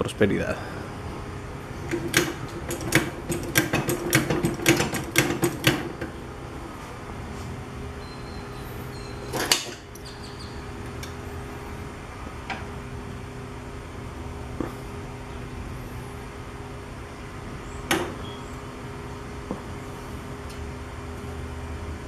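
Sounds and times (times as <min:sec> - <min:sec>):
low mechanical hum: 0:00.0 - 0:22.0
floor jack clicks: 0:01.9 - 0:06.1.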